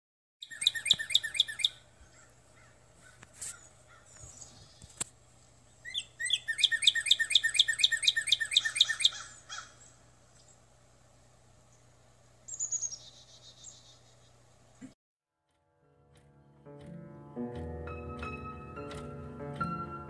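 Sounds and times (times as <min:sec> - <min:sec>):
songbird chirping: 0:00.4 - 0:15.0.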